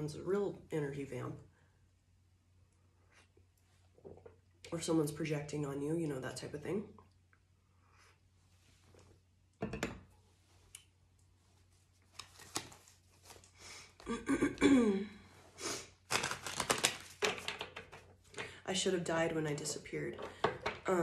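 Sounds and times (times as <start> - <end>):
cards being shuffled: 12.0 - 13.6, 16.0 - 18.4.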